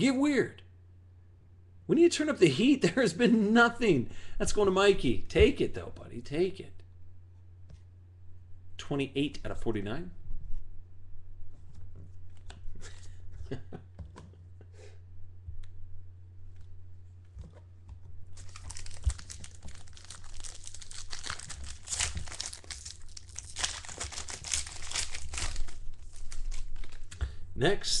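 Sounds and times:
steady low hum: 0.0 - 28.0
wrapper torn and crumpled: 18.3 - 27.2
cards clicking and rustling: 18.3 - 27.3.

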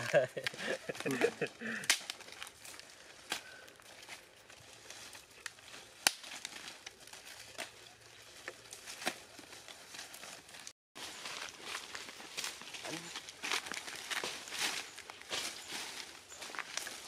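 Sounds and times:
leaves rustling and crackling: 0.0 - 17.0
twigs snapping: 0.4 - 4.2, 4.9 - 9.4.

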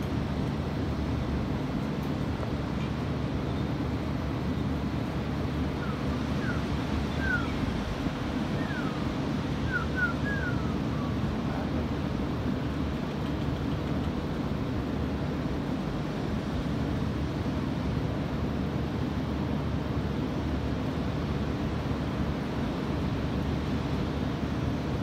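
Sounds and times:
ocean surf: 4.4 - 13.2
bird chirping: 5.8 - 7.6, 9.6 - 11.1.

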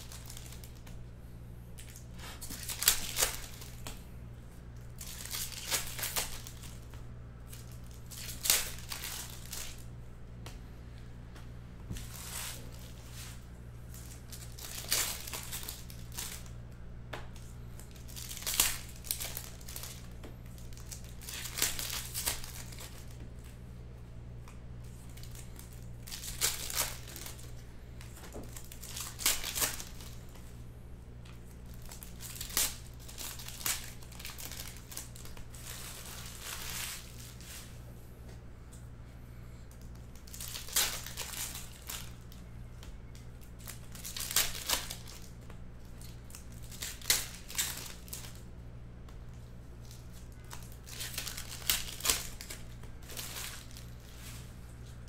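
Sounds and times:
foil packs tearing and crinkling: 0.0 - 0.8, 1.8 - 3.8, 4.9 - 6.8, 7.5 - 9.8, 12.0 - 16.5, 17.8 - 23.2, 25.1 - 27.6, 28.4 - 30.2, 31.6 - 37.6, 40.2 - 42.2, 43.6 - 45.3, 46.0 - 48.4, 49.8 - 54.4
steady low hum: 0.0 - 55.0.

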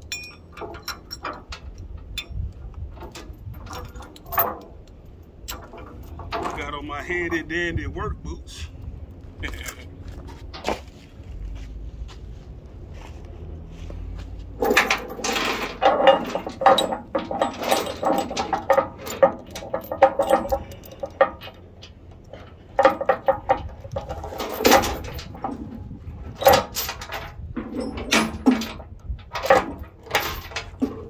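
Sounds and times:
steel chain clanking: 0.0 - 7.7, 14.4 - 31.0.

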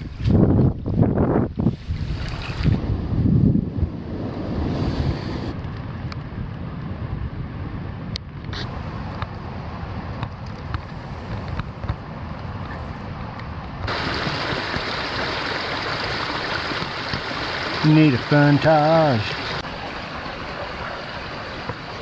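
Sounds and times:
wind buffeting microphone: 0.0 - 18.3
creek rushing: 13.9 - 22.0.

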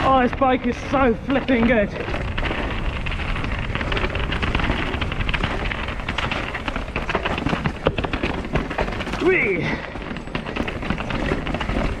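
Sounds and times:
wind on microphone: 0.0 - 9.2
bike rattling and knocking: 0.0 - 12.0.

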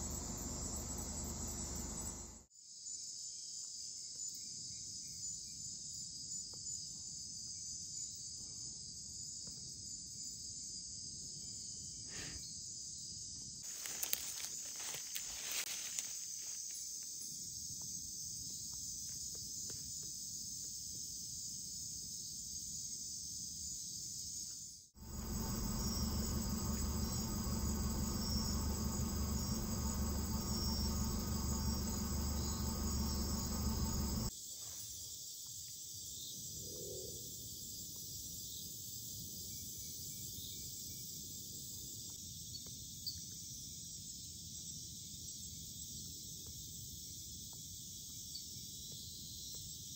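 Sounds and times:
low steady rumble: 0.0 - 2.4, 25.0 - 34.3
night insects chirping: 0.0 - 49.9
leaves rustling: 13.6 - 16.8.

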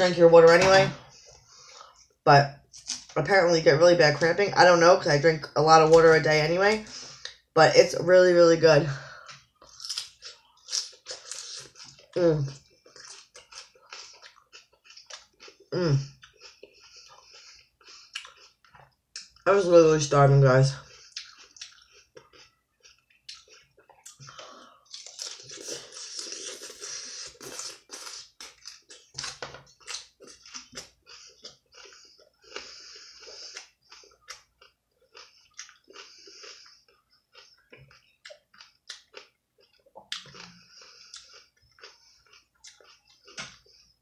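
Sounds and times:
chewing crunchy raw salad: 9.6 - 19.4, 20.8 - 43.8.

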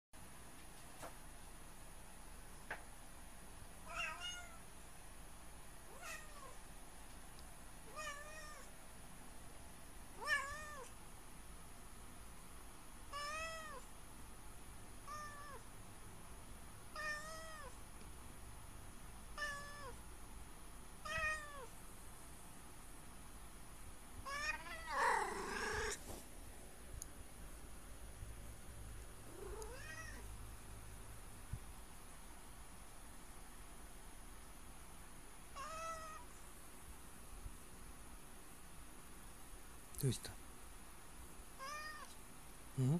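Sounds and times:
cat meowing: 3.8 - 4.6, 5.9 - 6.6, 7.9 - 8.7, 10.2 - 10.9, 13.1 - 13.8, 15.0 - 15.6, 16.9 - 17.7, 19.4 - 20.0, 21.0 - 21.7, 24.2 - 26.0, 29.3 - 30.3, 35.6 - 36.3, 41.6 - 42.1.

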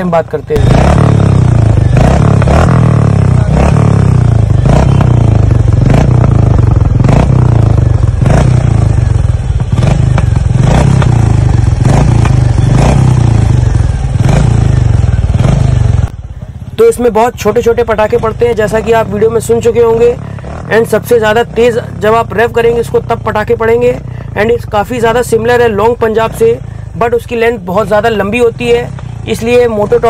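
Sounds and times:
motorcycle engine idling: 0.0 - 30.0
exhaust pops: 9.8 - 13.1.

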